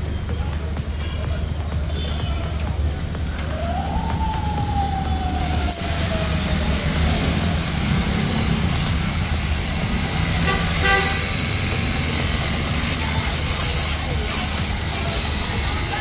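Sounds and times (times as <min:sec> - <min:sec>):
street traffic: 0:00.0 - 0:16.0
pressure washer spraying water: 0:05.4 - 0:16.0
car horn: 0:10.3 - 0:11.8.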